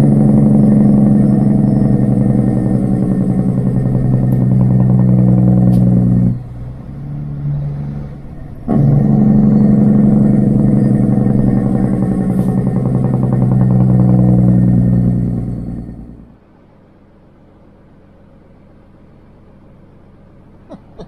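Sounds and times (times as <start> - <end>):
truck diesel engine droning: 0.0 - 16.4.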